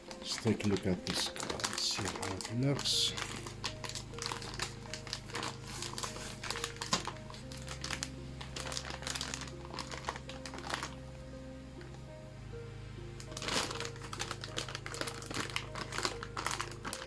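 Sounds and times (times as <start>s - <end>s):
plastic bag crinkling: 0.0s - 11.0s, 13.2s - 17.0s
soft background music: 0.0s - 17.0s.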